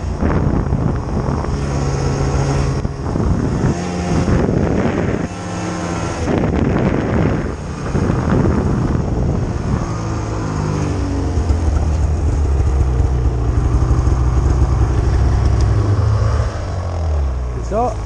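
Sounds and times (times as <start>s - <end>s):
rush of wind and snow: 0.0s - 18.0s
snowmobile engine running: 0.0s - 18.0s.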